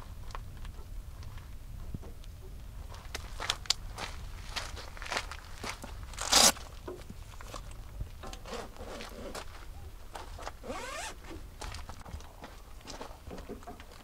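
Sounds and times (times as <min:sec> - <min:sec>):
zipper pulled: 0:06.2 - 0:06.6, 0:10.6 - 0:11.3
rustling and handling of gear: 0:08.4 - 0:13.3.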